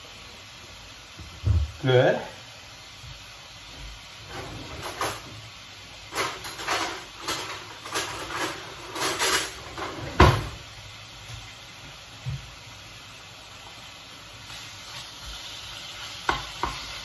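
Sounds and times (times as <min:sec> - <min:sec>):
faint steady hiss: 0:00.0 - 0:17.0
kitchen scrapes and rustles: 0:04.2 - 0:10.6.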